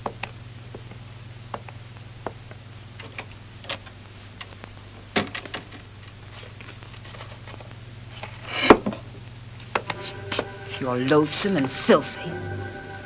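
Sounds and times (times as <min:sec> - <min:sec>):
steady low hum: 0:05.9 - 0:13.0.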